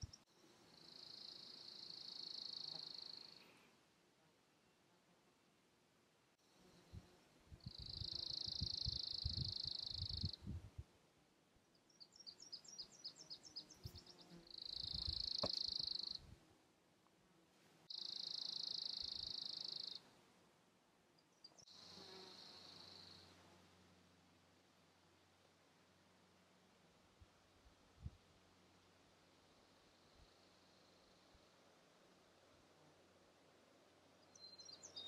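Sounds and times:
wind on microphone: 7.5 - 10.9.

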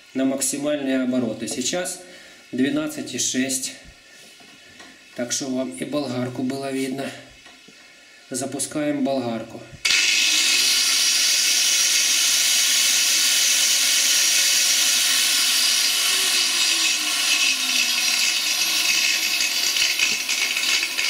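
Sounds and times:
angle grinder high-pitched whine: 9.8 - 21.0.

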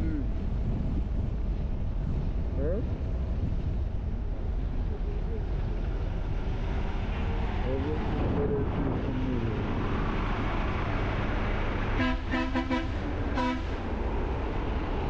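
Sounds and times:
wind noise: 0.0 - 15.0
vehicle horn toots: 12.0 - 13.8.

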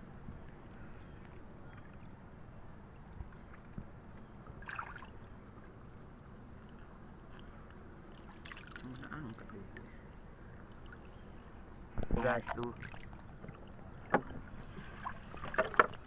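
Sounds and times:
water sloshing: 2.9 - 16.0
short splash: 4.6 - 5.2.

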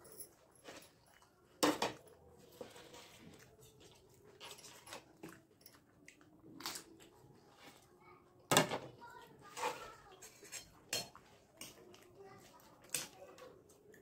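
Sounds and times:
wet chewing: 0.4 - 8.0, 10.7 - 14.0.

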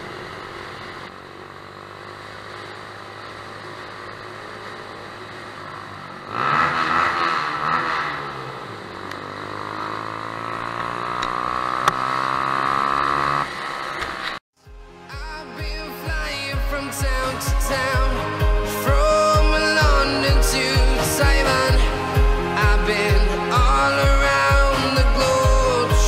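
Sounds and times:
motorcycle engine revving: 0.0 - 14.4.

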